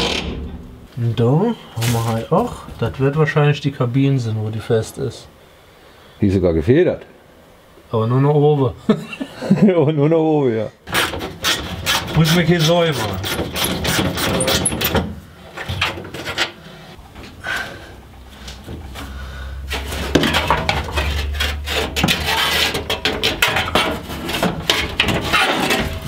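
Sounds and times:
metal panel scraping and clattering: 10.9 - 16.6, 18.6 - 26.0.

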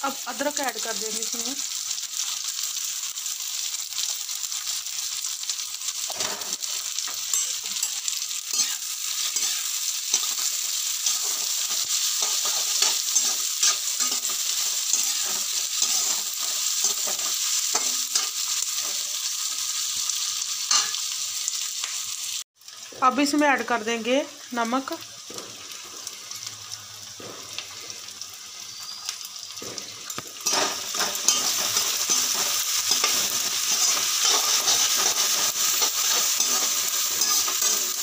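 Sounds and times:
onions sizzling in hot oil: 0.0 - 38.0
metal spatula scraping pan: 6.1 - 19.2, 30.4 - 38.0.

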